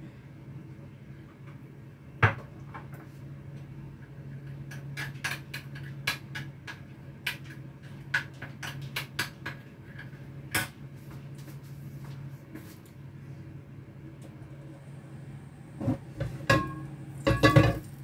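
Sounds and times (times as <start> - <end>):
hot oil crackling and popping: 4.3 - 9.7, 15.8 - 18.0
low hum: 13.0 - 18.0
knock on a pan: 16.2 - 17.9.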